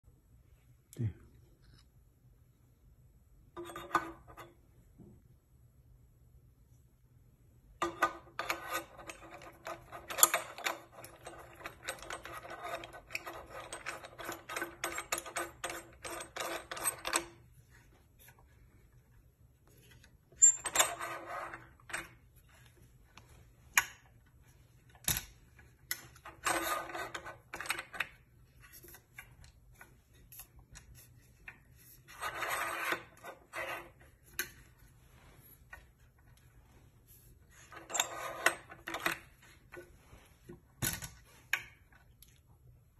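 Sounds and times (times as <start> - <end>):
metal clicking and rattling: 7.8 - 17.4.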